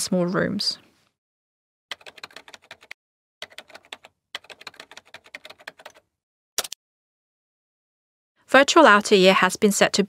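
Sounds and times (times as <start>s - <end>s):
keyboard typing clicks: 1.9s - 6.0s.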